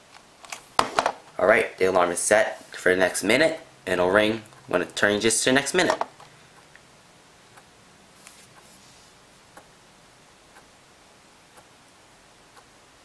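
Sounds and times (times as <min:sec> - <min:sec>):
clock ticking: 0:09.5 - 0:09.8, 0:10.5 - 0:10.8, 0:11.5 - 0:11.8, 0:12.5 - 0:12.8.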